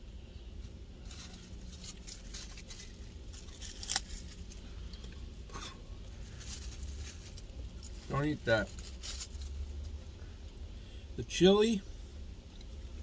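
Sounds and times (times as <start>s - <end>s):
low steady rumble: 0.0s - 13.0s
food packaging crinkling: 1.0s - 9.8s.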